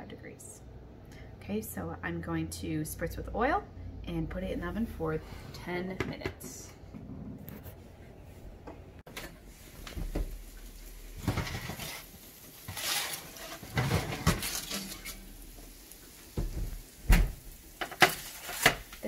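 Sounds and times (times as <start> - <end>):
metal baking sheet clattering and scraping: 11.1 - 15.3, 17.8 - 19.0.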